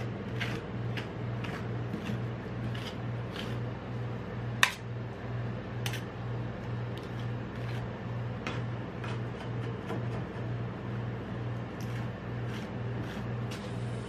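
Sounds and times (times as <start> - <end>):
metal spatula scraping on steel: 0.0 - 3.6.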